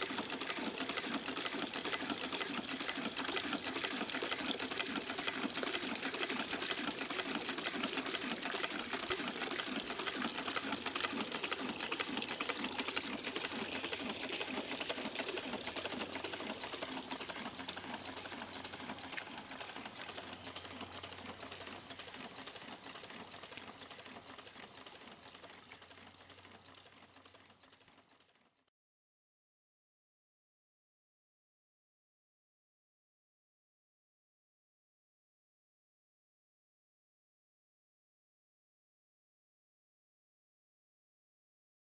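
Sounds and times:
water splashing into bucket: 0.0s - 24.2s
engine mechanical clatter: 0.0s - 28.6s.

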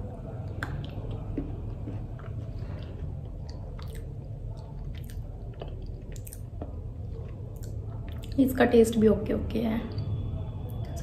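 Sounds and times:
low steady hum: 0.0s - 11.0s
person chewing: 0.4s - 8.4s.

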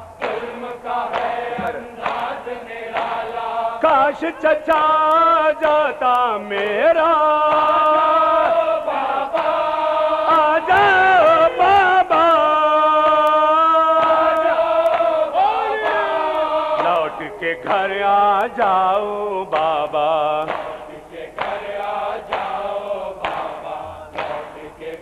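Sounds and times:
men singing a lament: 0.0s - 25.0s
chest-beating slaps: 1.1s - 3.2s, 19.5s - 22.6s, 23.2s - 24.7s.

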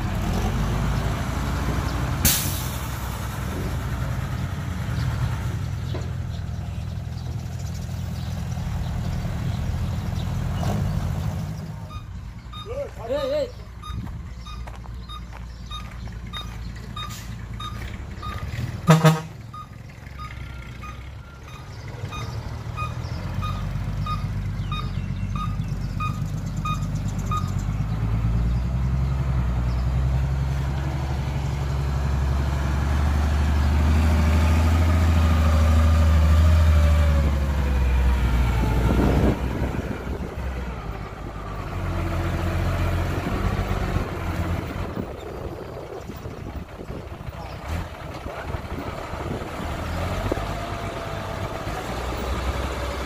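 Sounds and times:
heavy diesel engine rumbling: 0.0s - 53.0s
reverse alarm beeping: 11.9s - 12.9s, 13.8s - 18.4s, 19.5s - 27.6s.

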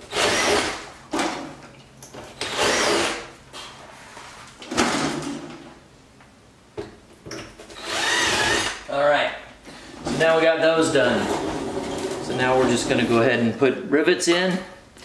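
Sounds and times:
power drill whine: 2.4s - 3.2s, 7.8s - 8.8s.

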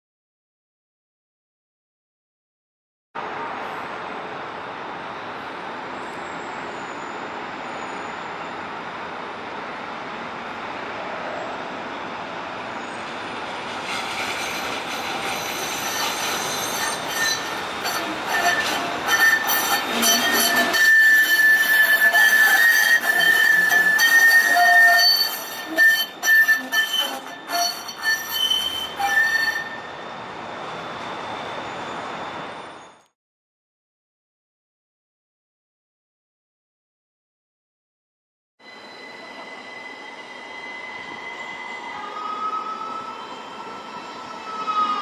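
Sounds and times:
tram wheels squealing on rails: 3.2s - 33.1s, 38.6s - 45.0s.

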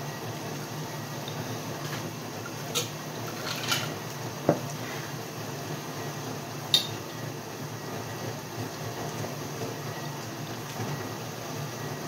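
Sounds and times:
dishwasher humming: 0.0s - 12.0s
ice clinking in plastic cup: 2.8s - 3.9s.

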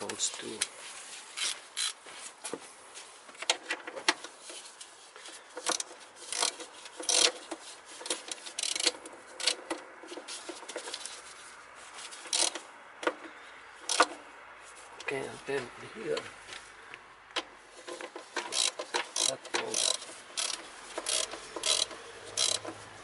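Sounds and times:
ratchet wrench clicking: 1.4s - 2.0s, 5.6s - 9.6s, 12.3s - 12.6s, 13.9s - 14.1s, 18.4s - 22.8s.

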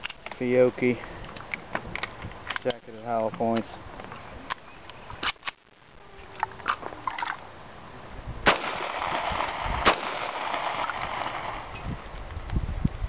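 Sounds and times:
gunshots: 8.4s - 11.8s.

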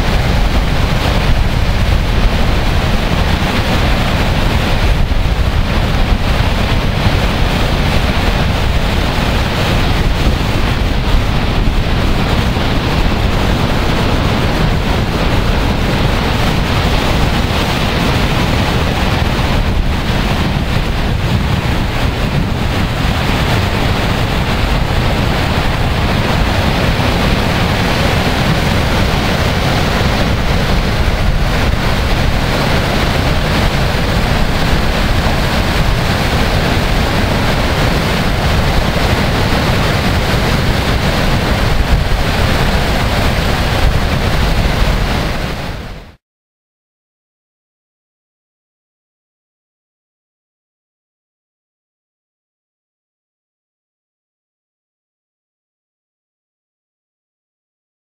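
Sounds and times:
waterfall rushing: 0.0s - 46.2s.

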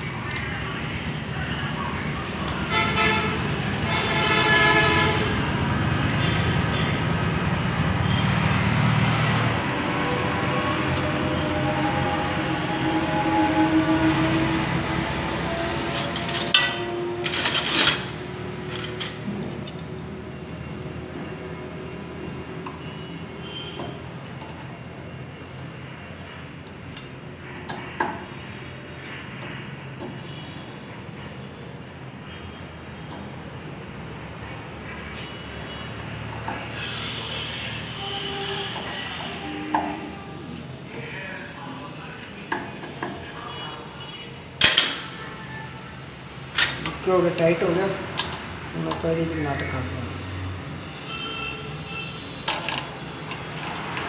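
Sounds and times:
horn-like tone: 11.2s - 15.9s, 36.6s - 40.6s.

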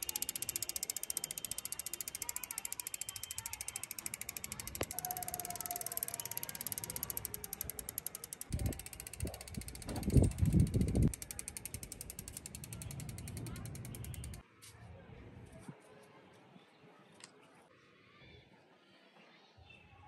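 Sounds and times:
bicycle freewheel ticking: 0.0s - 14.4s.

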